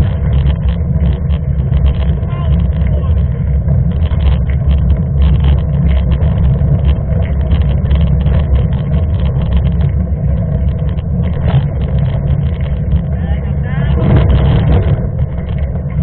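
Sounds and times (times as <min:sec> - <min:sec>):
bike ticking and rattling: 0:00.0 - 0:16.0
wind and road rumble: 0:00.0 - 0:16.0.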